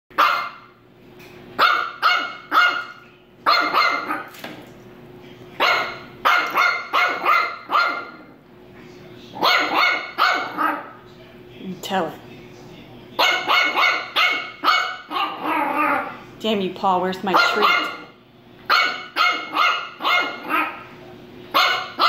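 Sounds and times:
puppy barking: 0.1 - 0.7, 1.6 - 4.4, 5.6 - 8.4, 9.4 - 11.0, 13.2 - 16.2, 17.3 - 22.0.

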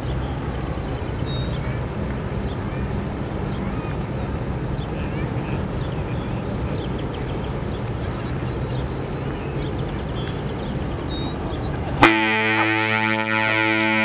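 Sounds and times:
ship horn blast: 12.0 - 14.0.

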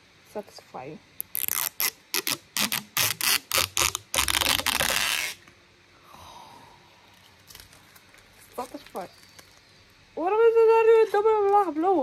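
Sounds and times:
plastic film peeling off metal: 1.2 - 5.5.

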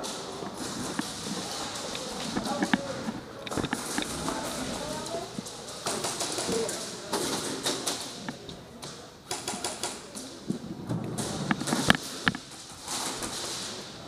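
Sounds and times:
airsoft gunfire clicks and taps: 9.3 - 10.2.

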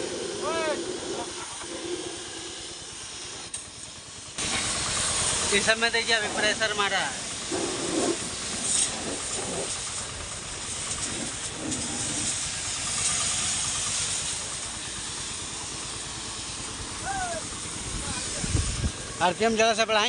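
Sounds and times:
pressure washer spraying water: 0.0 - 20.0.

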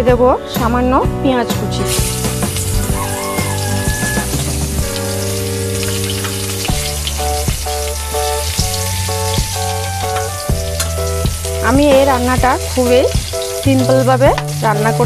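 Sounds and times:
background music with held notes: 0.0 - 15.0
onion sizzling in oil: 1.9 - 15.0.

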